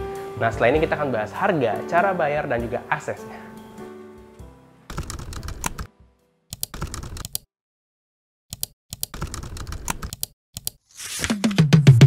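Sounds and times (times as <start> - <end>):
background music: 0.0 - 6.4
keyboard typing clicks: 4.9 - 5.9, 6.5 - 7.4, 8.5 - 10.8.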